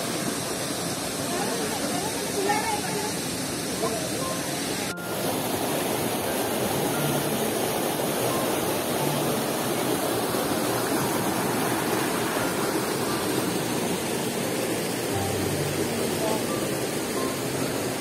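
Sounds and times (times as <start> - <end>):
stream rushing over rocks: 0.0 - 18.0.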